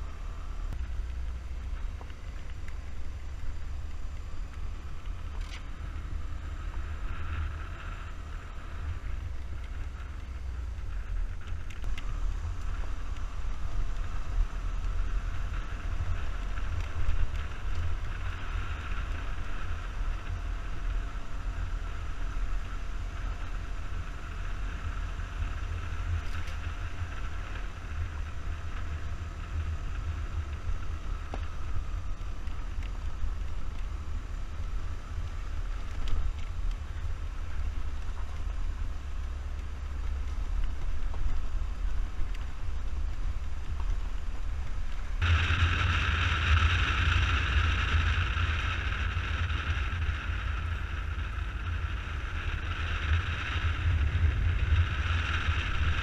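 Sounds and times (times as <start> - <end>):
road noise on gravel: 0.0 - 56.0
scooter engine: 0.0 - 56.0
wind buffeting microphone: 24.3 - 56.0.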